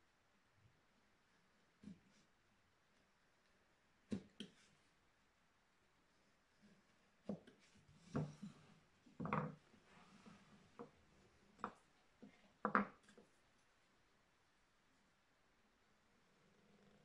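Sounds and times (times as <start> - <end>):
wooden chisels knocking on wood: 8.1 - 9.6, 12.6 - 13.1.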